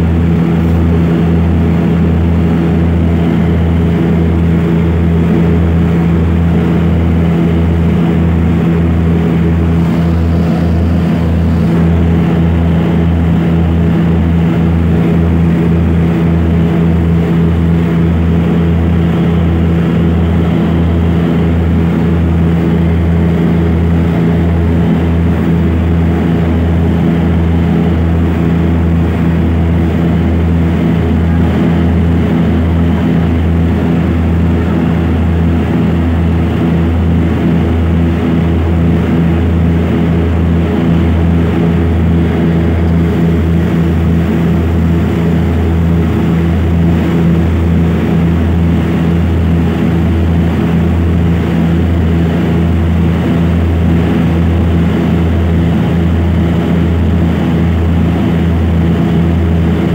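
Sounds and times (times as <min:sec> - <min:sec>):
propeller engine drone in cabin: 0:00.0 - 0:59.9.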